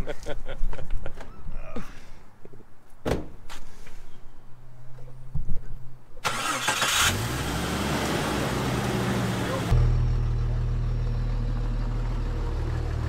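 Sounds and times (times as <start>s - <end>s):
thump: 3.0s - 3.4s
car engine starting and revving: 6.2s - 13.0s.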